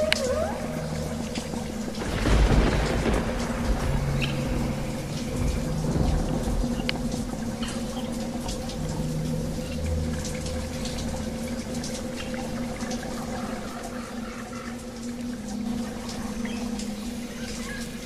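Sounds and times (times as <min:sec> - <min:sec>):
low underwater hum: 0:00.0 - 0:18.0
crackling clicks: 0:01.3 - 0:11.0.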